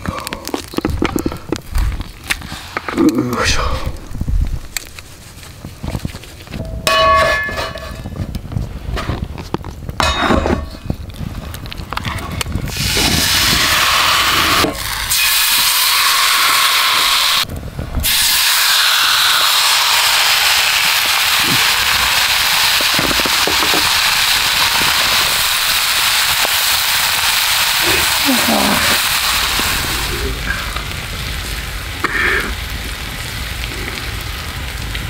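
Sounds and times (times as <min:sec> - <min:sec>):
steak sizzling in a frying pan: 0:12.7 - 0:17.4, 0:18.0 - 0:31.9.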